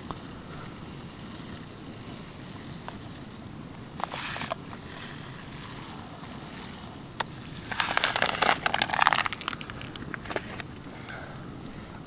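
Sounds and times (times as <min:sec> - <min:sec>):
low background hiss: 0:00.0 - 0:12.0
plastic packet crinkling: 0:07.7 - 0:10.6.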